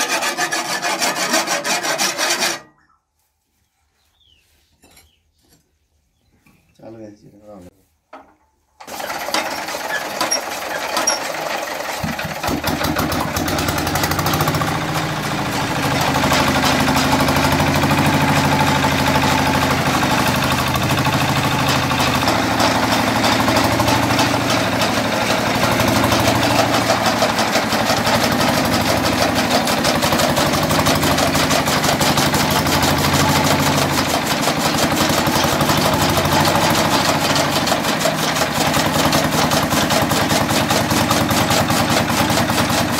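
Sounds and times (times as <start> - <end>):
chaff cutter chopping fodder: 0.0 - 2.6, 8.8 - 42.9
diesel engine knocking: 11.9 - 42.9.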